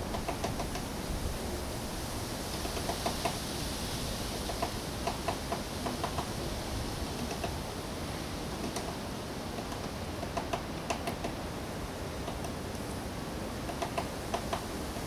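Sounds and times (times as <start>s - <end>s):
steady hiss: 0.0s - 15.0s
woodpecker pecking on wood: 0.1s - 0.8s, 2.5s - 3.4s, 9.6s - 11.4s, 13.7s - 14.6s.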